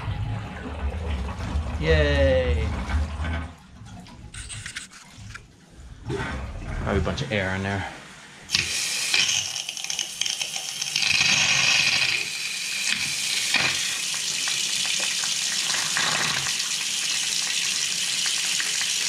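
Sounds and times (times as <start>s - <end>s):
faucet water hissing and spitting: 8.5s - 19.0s.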